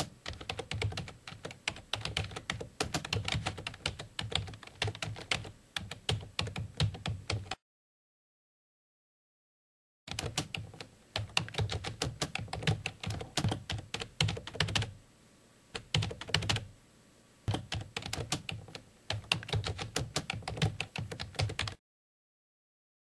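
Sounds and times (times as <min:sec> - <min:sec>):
keyboard typing: 0:00.0 - 0:07.6, 0:10.1 - 0:14.9, 0:15.8 - 0:16.7, 0:17.5 - 0:21.8.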